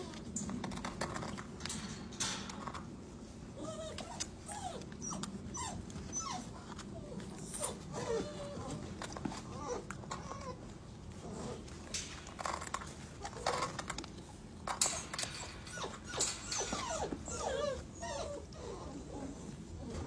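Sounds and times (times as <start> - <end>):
puppies whimpering: 3.6 - 11.6, 14.7 - 20.0.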